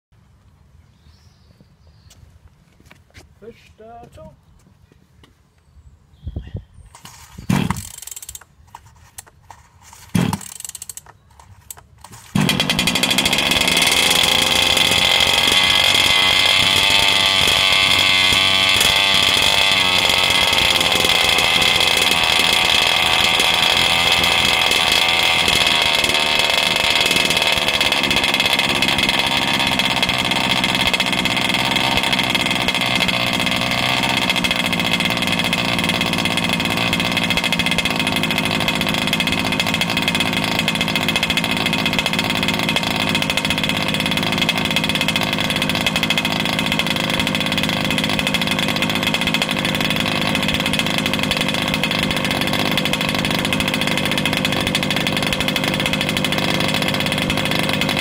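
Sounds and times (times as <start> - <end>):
recoil starter pulls: 6.9 - 58.0
small two-stroke engine idling: 7.5 - 58.0.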